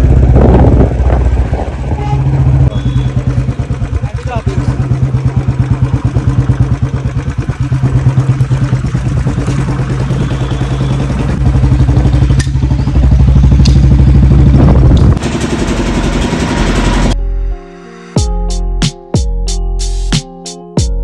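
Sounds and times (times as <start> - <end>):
motorcycle engine thumping: 0.0 - 16.8.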